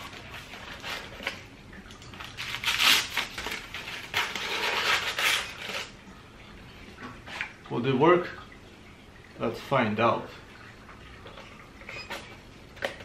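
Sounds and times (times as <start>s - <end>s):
aluminium foil crinkling: 0.0s - 1.4s, 2.0s - 5.9s.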